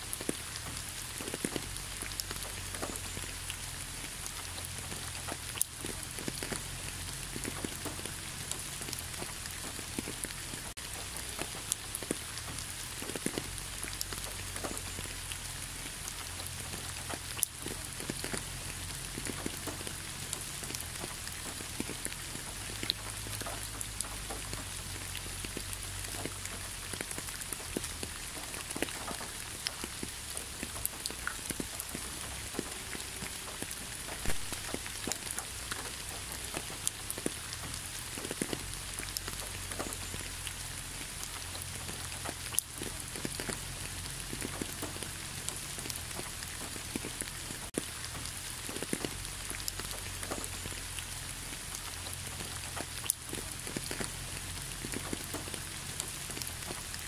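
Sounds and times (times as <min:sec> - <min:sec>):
low steady rumble: 0:00.0 - 0:57.0
raindrops tapping: 0:00.0 - 0:57.0
steady rain: 0:00.0 - 0:57.0.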